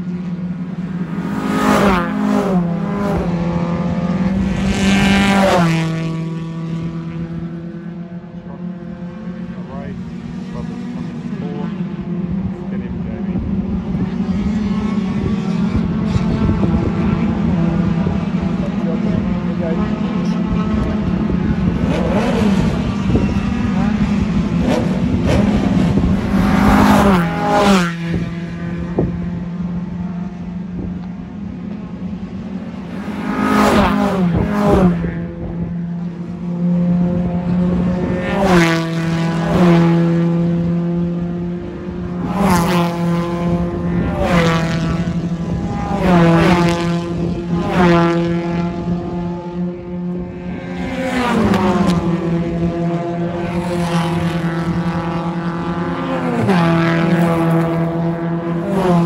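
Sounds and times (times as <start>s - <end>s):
race car engine revving: 0.0s - 59.0s.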